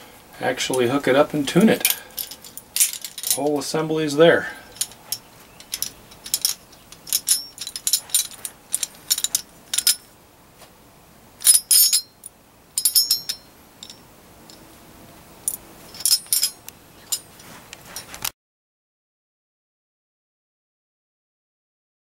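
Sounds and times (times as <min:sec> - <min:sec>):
metal tubing clinking and rattling: 0:00.6 - 0:03.7, 0:04.4 - 0:10.1, 0:11.4 - 0:14.7, 0:15.4 - 0:18.3.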